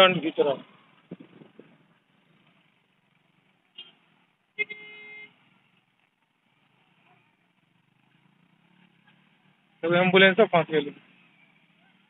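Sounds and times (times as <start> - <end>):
vehicle horn honking: 3.7 - 5.4.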